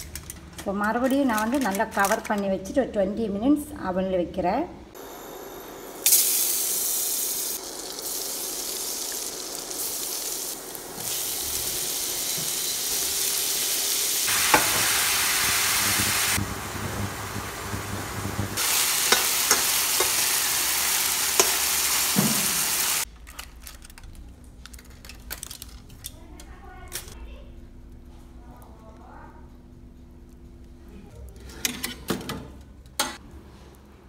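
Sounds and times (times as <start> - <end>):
butter sizzling in a frying pan: 6.1 - 23.0
spatula tapping a pan: 19.1 - 20.2.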